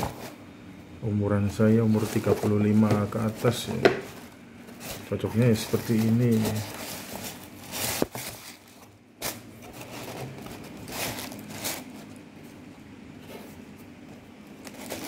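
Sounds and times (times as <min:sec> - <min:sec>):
tissue paper rustling: 0:01.8 - 0:12.2, 0:14.6 - 0:15.0.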